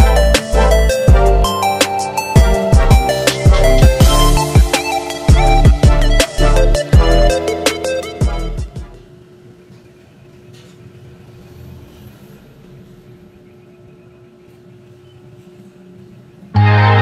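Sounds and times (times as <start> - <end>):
music: 0.0 - 9.1, 16.5 - 17.0.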